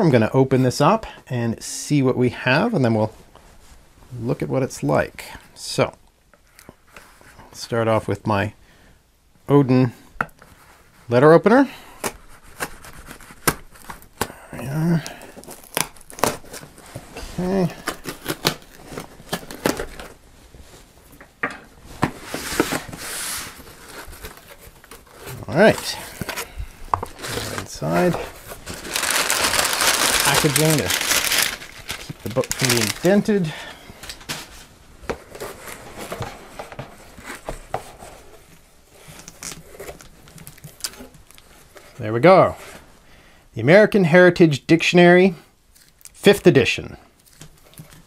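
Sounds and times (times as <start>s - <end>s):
hands handling cardboard box: 15.0s - 42.9s
tape and cardboard tearing: 15.2s - 16.8s, 17.6s - 20.2s, 27.0s - 33.2s.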